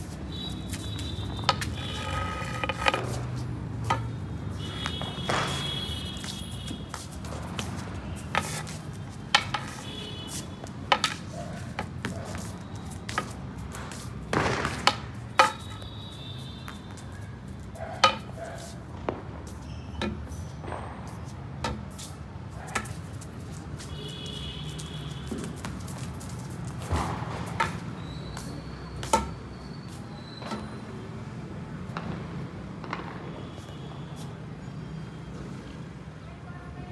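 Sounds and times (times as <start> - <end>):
short scuffing: 0.0 - 19.7, 20.8 - 30.8
knocks on concrete floor: 3.8 - 7.7, 14.2 - 15.8.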